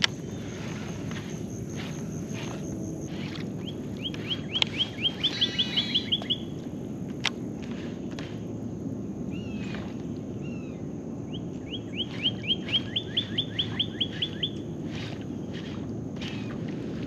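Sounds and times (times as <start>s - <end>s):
songbird whistling: 3.6s - 6.5s, 10.4s - 16.6s.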